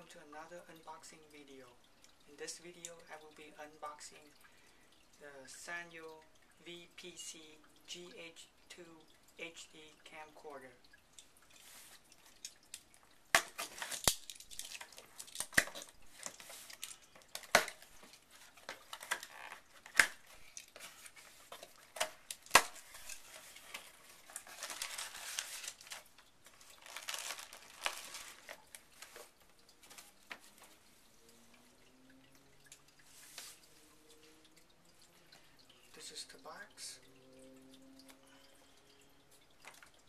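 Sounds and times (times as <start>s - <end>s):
plastic packing crinkling: 11.6s - 30.7s.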